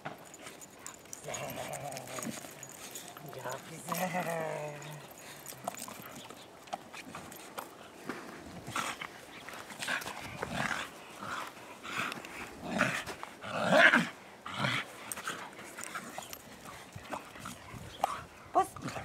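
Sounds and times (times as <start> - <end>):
dog growling: 0.8 - 6.2.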